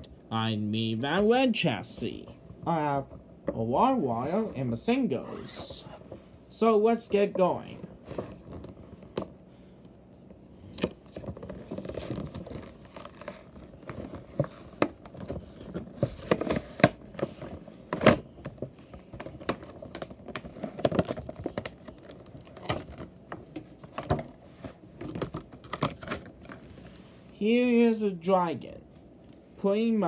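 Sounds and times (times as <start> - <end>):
plastic packaging crinkling: 10.6 - 27.0.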